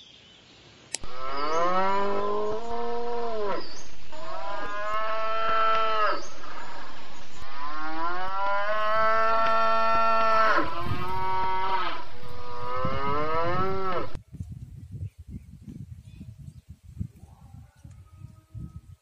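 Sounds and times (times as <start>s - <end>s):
cattle mooing: 1.0s - 6.8s, 7.4s - 14.2s.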